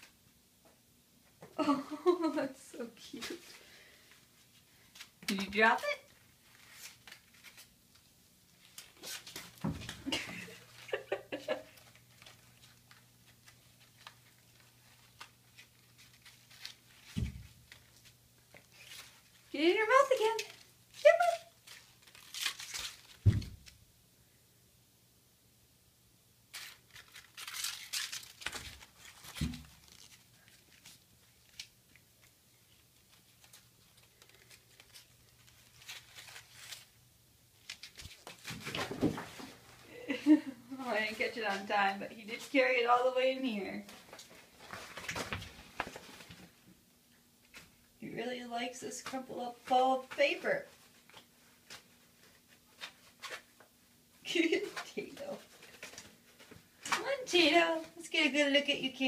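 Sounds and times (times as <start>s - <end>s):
paper ball crinkling on concrete: 4.4s - 23.8s, 26.5s - 38.8s.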